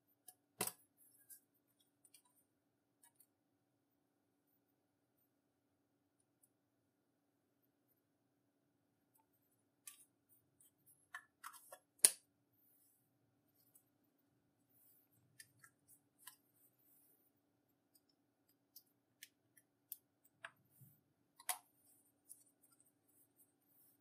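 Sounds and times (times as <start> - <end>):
small sharp clicks and taps: 11.1 - 12.3, 17.9 - 22.9.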